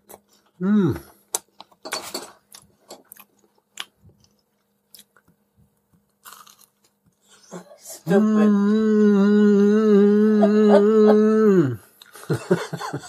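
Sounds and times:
person chewing crunchy food: 0:00.0 - 0:07.5.

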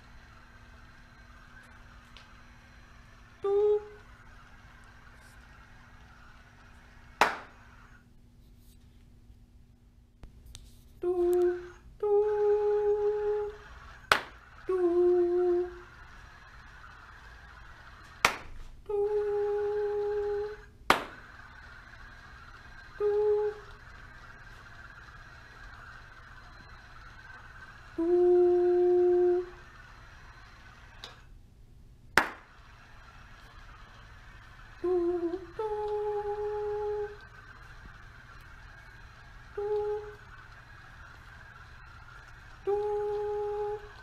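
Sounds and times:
person humming held notes: 0:03.4 - 0:04.1, 0:11.0 - 0:13.6, 0:14.7 - 0:15.9, 0:18.8 - 0:20.7, 0:23.0 - 0:23.8, 0:28.0 - 0:29.6, 0:34.8 - 0:37.2, 0:39.5 - 0:40.3, 0:42.6 - 0:44.0
sharp hand clap: 0:07.2 - 0:07.6, 0:14.1 - 0:14.4, 0:18.2 - 0:18.7, 0:20.9 - 0:21.3, 0:32.2 - 0:32.6.

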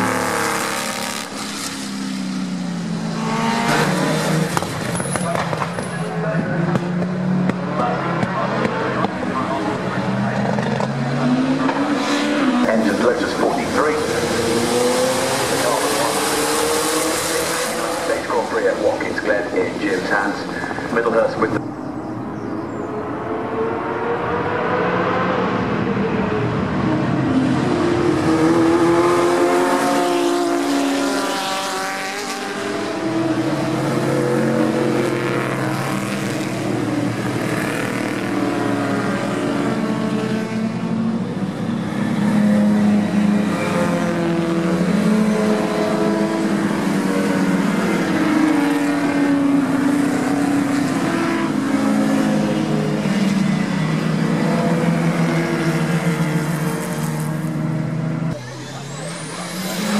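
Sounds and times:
racing cars passing at speed: 0:00.0 - 0:59.9.

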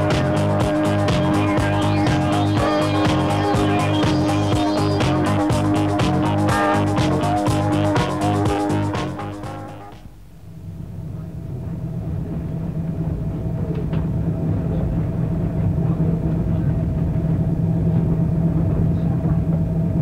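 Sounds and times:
train rumbling inside carriage: 0:10.8 - 0:20.0.

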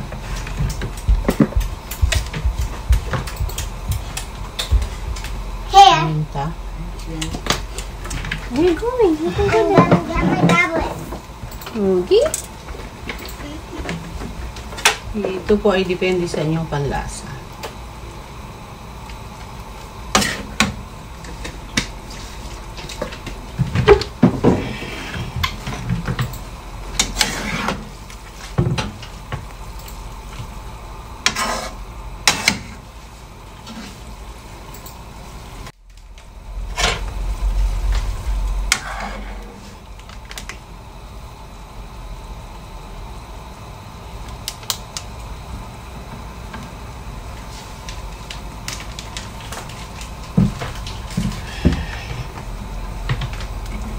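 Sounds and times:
low rumble: 0:35.9 - 0:40.0.

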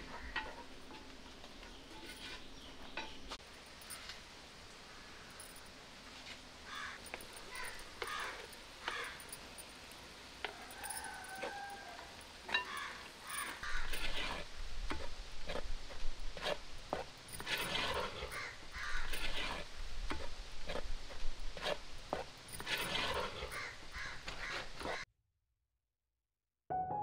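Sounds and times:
wooden spatula scraping clay pot: 0:00.0 - 0:03.4, 0:12.5 - 0:25.0.

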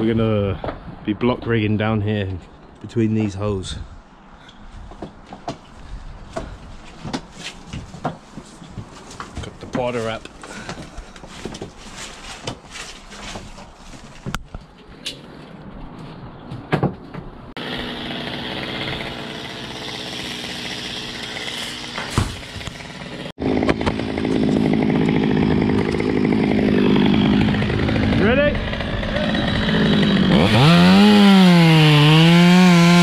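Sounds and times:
chainsaw running: 0:17.6 - 0:33.0.

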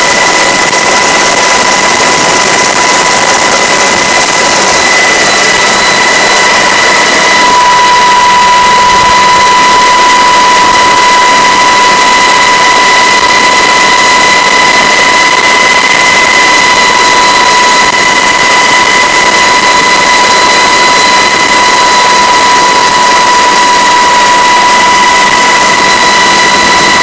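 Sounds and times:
helicopter turbine whine: 0:00.0 - 0:27.0.

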